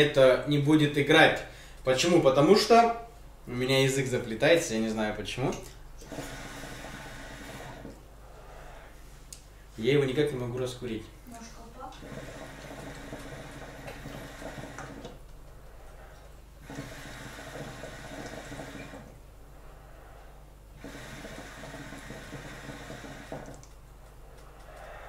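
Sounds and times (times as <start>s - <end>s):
hookah water bubbling: 5.0s - 9.7s, 10.6s - 25.0s.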